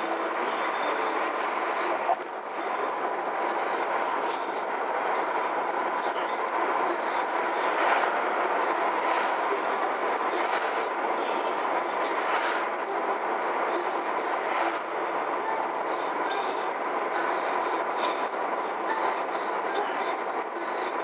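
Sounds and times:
car engine hum: 0.0 - 21.0
road and tyre noise: 0.0 - 21.0.

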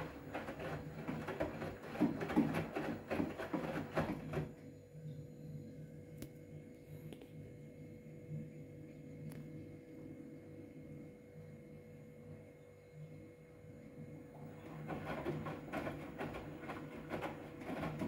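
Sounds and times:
washing machine drum tumbling laundry: 0.0 - 4.6, 14.4 - 18.0
low machine hum: 0.0 - 18.0.

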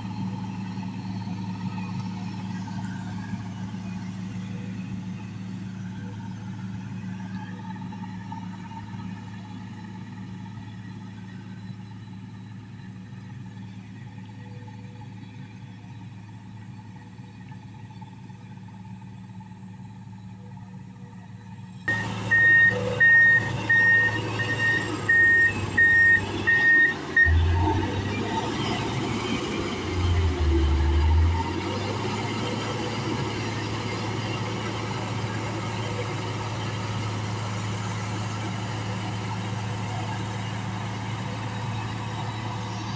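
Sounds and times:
diesel engine running: 0.0 - 42.9
reversing alarm beeping: 21.9 - 31.3.

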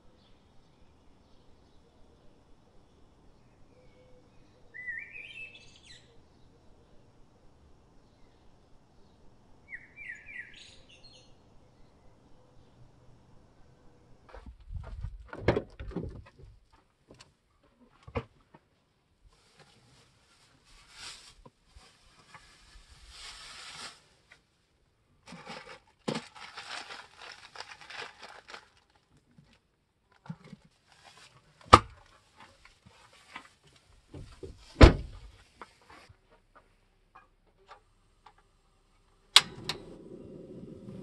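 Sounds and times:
rustling and crinkling: 14.2 - 24.6, 25.2 - 38.4
low rumble: 39.7 - 41.0.

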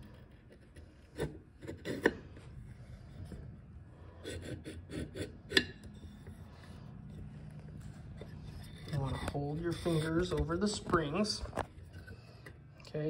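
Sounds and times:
steel parts scraping and clicking: 5.5 - 12.6.

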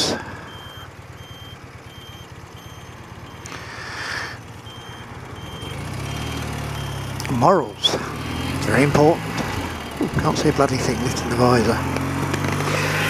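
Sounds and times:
motorcycle engine running: 0.0 - 13.0
high electronic beep: 0.5 - 3.5, 4.6 - 11.8.

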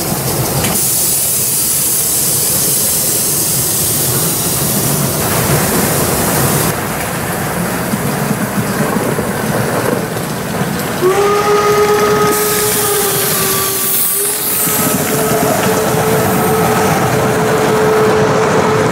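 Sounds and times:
steam train hissing and rumbling: 0.0 - 18.9
steam locomotive whistle: 11.0 - 18.9.

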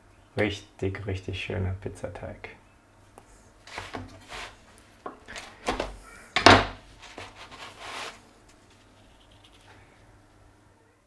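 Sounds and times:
pizza crust scraping on wood: 3.7 - 4.6, 6.9 - 9.7.

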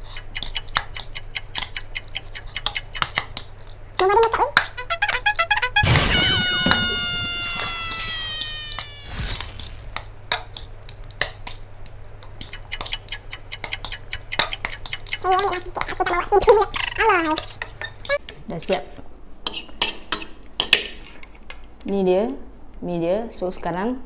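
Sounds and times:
held musical note: 4.6 - 9.8
fork scraping ceramic plate: 12.4 - 15.8.

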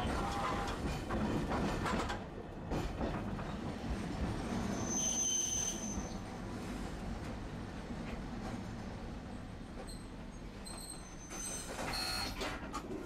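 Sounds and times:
tram clicks: 0.0 - 4.6
tram wheels rumbling: 0.0 - 13.0
high wheel squeal: 4.7 - 6.2, 10.6 - 12.2.

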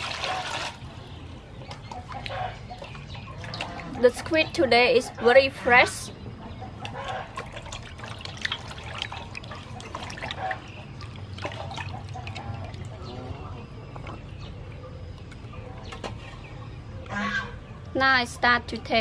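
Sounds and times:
water splashing in metal basin: 0.0 - 1.0, 1.6 - 4.5, 6.7 - 14.4
chickens clucking: 1.6 - 7.8.

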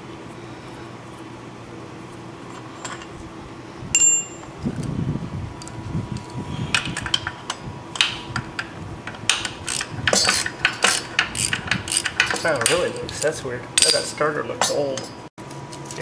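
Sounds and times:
ringing metal clink: 4.0 - 4.5, 13.8 - 15.2
ratchet clicking: 6.7 - 15.1.

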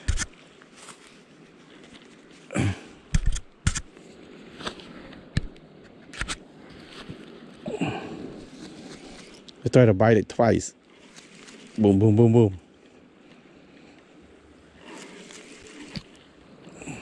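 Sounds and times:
camera handling knocks: 3.1 - 3.8.

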